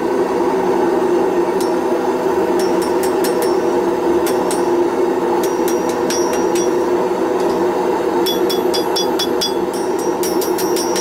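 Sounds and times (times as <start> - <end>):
hammer ringing on steel: 2.5 - 11.0.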